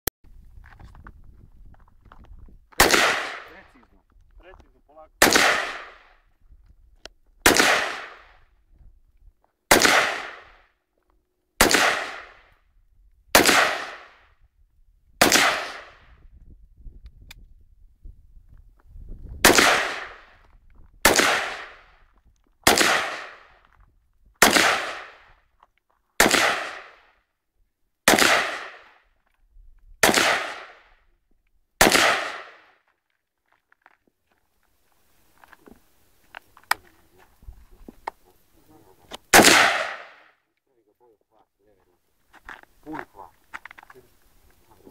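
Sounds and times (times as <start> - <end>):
rifle shots with echo: 2.8 - 3.8, 5.2 - 6.2, 7.4 - 8.4, 9.7 - 10.7, 11.6 - 12.5, 13.4 - 14.3, 15.2 - 16.0, 19.4 - 20.3, 21.0 - 21.9, 22.6 - 23.6, 24.4 - 25.3, 26.2 - 27.2, 28.0 - 29.0, 30.0 - 30.9, 31.8 - 32.8, 39.3 - 40.4.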